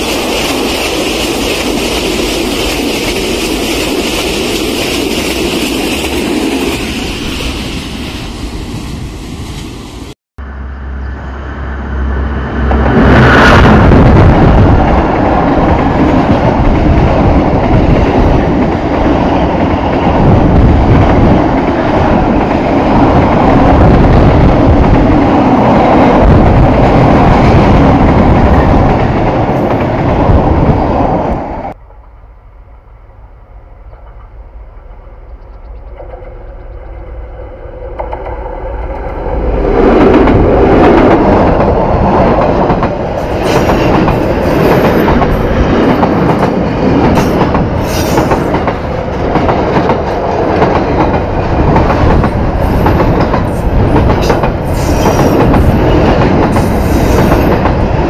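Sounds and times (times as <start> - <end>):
train wheels clickety-clack: 0.0 - 7.6, 35.3 - 37.0, 37.8 - 58.0
train rumbling on rails: 0.0 - 58.0.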